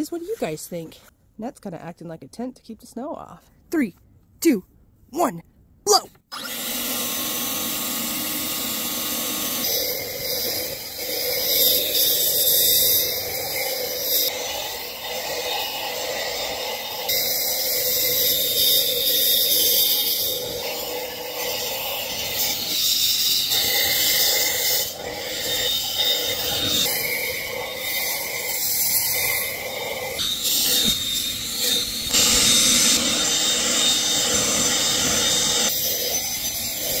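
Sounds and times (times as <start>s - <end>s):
leaf blower running: 6.4s - 18.0s.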